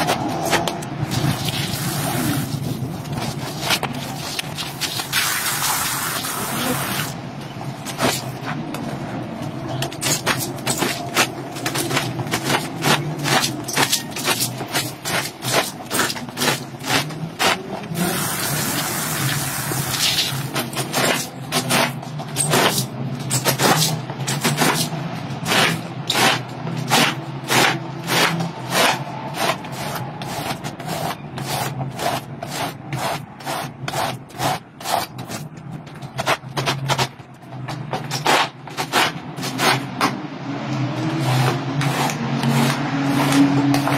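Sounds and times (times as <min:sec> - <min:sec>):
brush scrubbing wet rug: 0:01.1 - 0:07.1, 0:25.5 - 0:35.4, 0:40.7 - 0:43.9.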